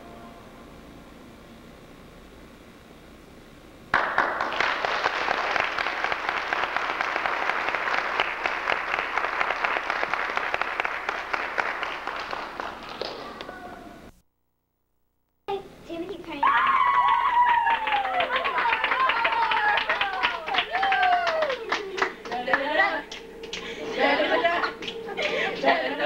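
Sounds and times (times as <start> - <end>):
audience applauding: 3.9 - 13.8, 16.8 - 25.8.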